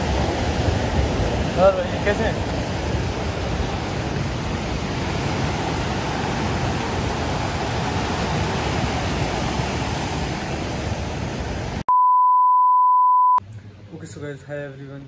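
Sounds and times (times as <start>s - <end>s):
flooding river rushing: 0.0s - 11.8s
heavy rain: 0.0s - 11.8s
steady beep tone: 11.9s - 13.4s.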